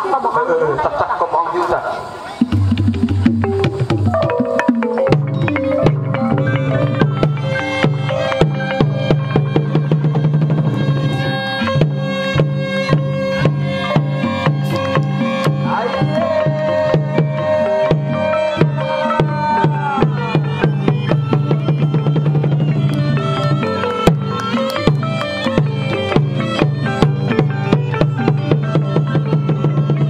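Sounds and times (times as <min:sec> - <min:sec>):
low drum beat: 0:02.4 - 0:30.0
struck percussion ensemble melody: 0:02.4 - 0:30.0
reed oboe long held note: 0:05.8 - 0:29.8.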